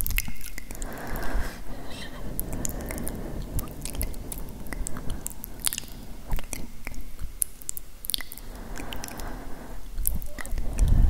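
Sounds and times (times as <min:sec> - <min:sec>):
wet mouth clicks and smacks: 0:05.6 - 0:09.4, 0:10.0 - 0:11.0.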